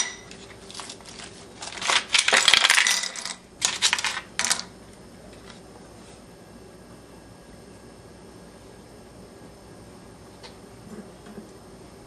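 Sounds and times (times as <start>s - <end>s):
ice cubes clattering in a pan: 1.6s - 4.6s.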